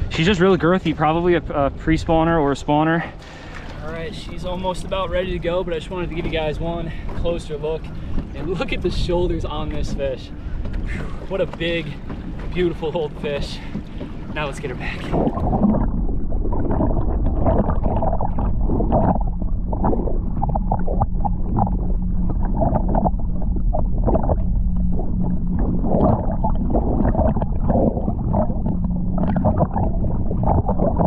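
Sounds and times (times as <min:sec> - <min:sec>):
steady low hum: 0:00.0 - 0:31.0
underwater gurgling and sloshing: 0:00.0 - 0:31.0
underwater knocks: 0:13.7 - 0:31.0.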